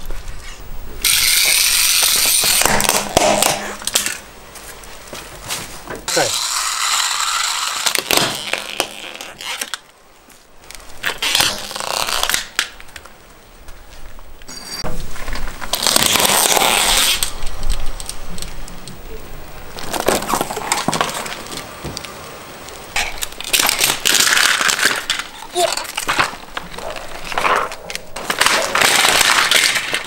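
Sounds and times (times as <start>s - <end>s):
tyre crushing small objects: 1.0s - 4.3s, 14.9s - 18.7s, 19.7s - 22.2s, 23.0s - 30.0s.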